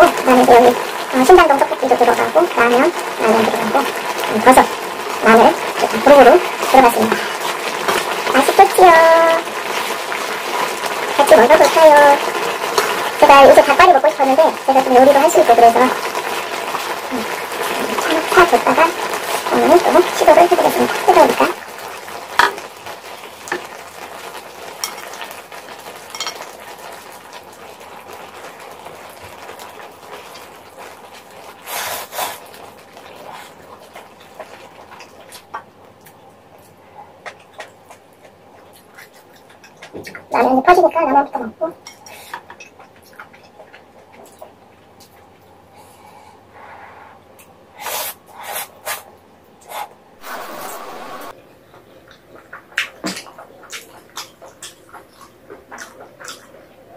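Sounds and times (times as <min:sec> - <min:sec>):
sauce simmering and sizzling in pan: 0:00.0 - 0:45.8, 0:49.1 - 0:56.9
noodle slurps: 0:31.6 - 0:32.6, 0:49.7 - 0:51.3
person slurping noodles: 0:47.8 - 0:49.0, 0:49.7 - 0:51.3.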